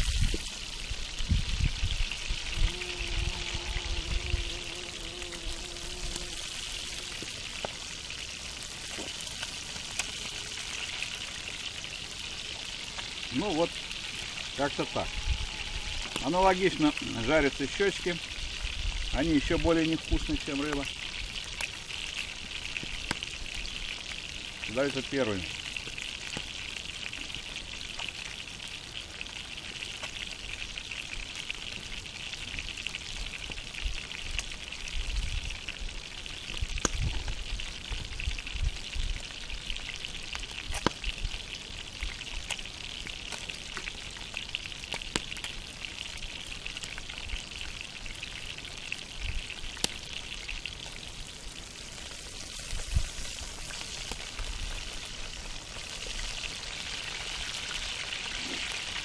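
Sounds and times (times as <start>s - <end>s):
fish frying in hot fat: 0.0s - 59.0s.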